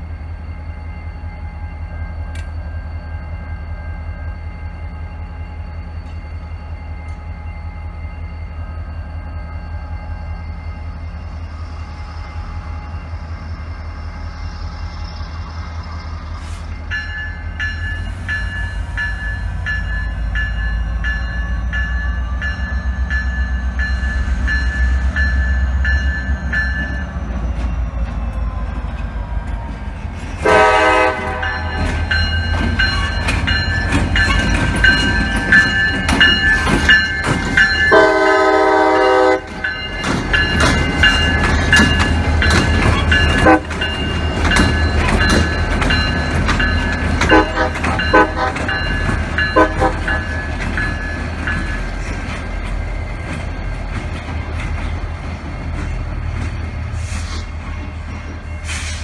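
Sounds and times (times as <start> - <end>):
locomotive bell ringing: 0.0 - 28.7, 30.4 - 56.1
diesel locomotive engines rumbling: 0.0 - 59.0
locomotive horn blasts: 30.4 - 31.9, 37.9 - 39.6, 43.4 - 43.8, 47.2 - 48.8, 49.5 - 50.3
wheels clacking over rail joints: 31.4 - 38.1, 39.4 - 56.9.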